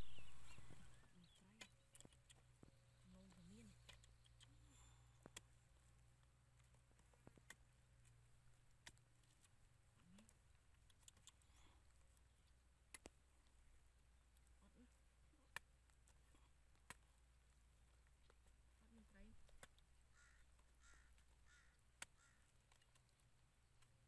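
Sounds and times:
faint sharp clicks: 0.5 - 13.6, 19.4 - 24.0.

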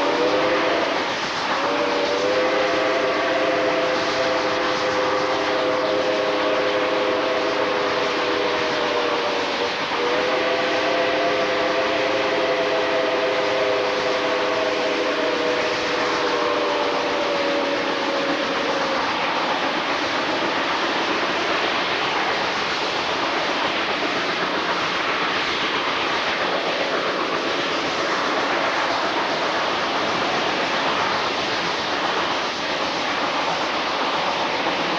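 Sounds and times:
steam locomotive whistle: 0.0 - 20.7
moving train rushing noise: 0.0 - 34.9.

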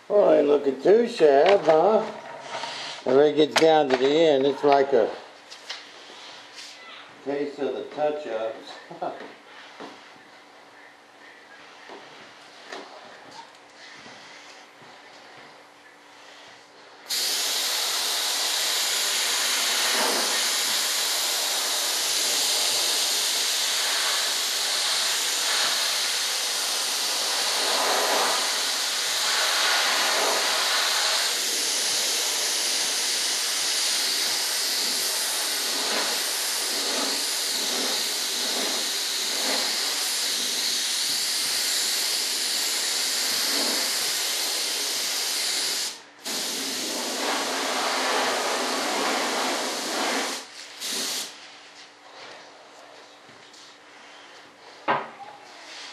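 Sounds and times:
paint spray gun hissing: 17.1 - 51.4.

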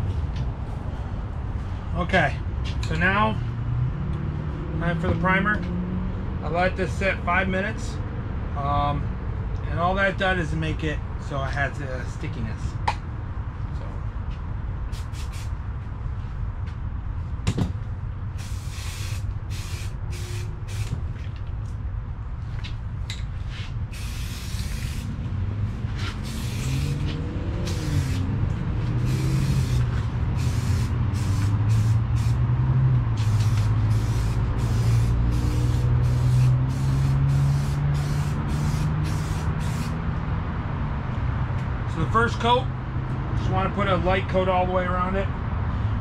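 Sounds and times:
aerosol can spraying hiss: 15.0 - 15.5, 18.4 - 20.9, 23.9 - 25.1, 26.0 - 28.3, 29.0 - 32.4, 33.2 - 40.0.

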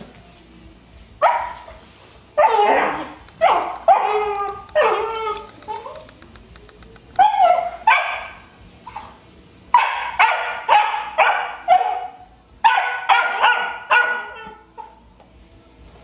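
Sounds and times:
puppy barking high-pitched yaps: 1.2 - 1.8, 2.4 - 6.2, 7.2 - 15.0.

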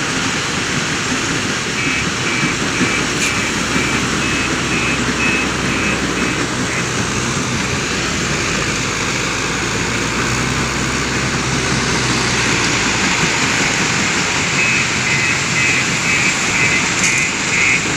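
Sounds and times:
diesel engine running: 0.0 - 17.9
reversing alarm beeps: 1.8 - 6.9, 14.5 - 17.9.

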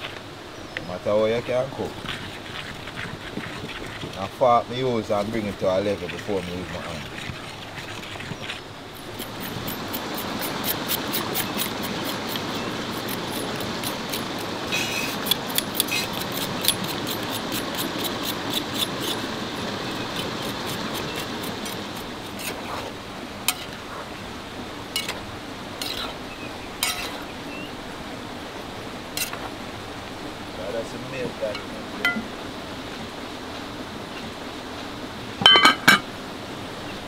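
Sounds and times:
metal fork clinking on cookware: 26.8 - 27.2.

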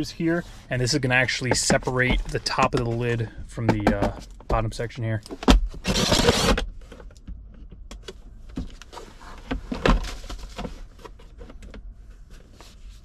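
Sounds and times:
hard plastic clicking and knocking: 3.6 - 5.7.

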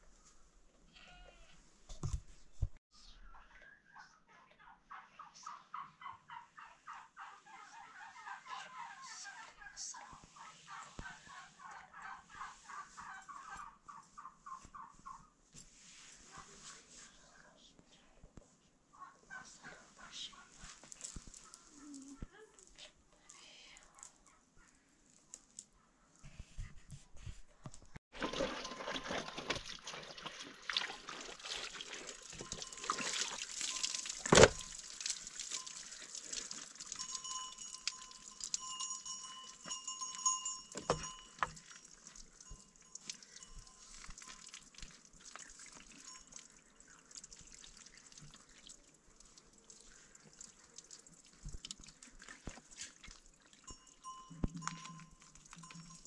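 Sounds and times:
water splashing from a hose: 28.1 - 39.0, 41.5 - 53.7.

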